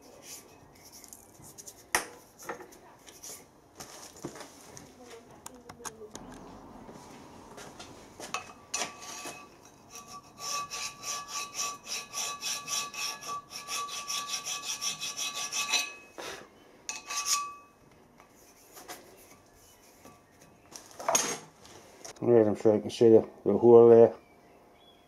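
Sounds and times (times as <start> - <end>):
hand file scraping metal: 8.7 - 16.1, 16.9 - 17.7.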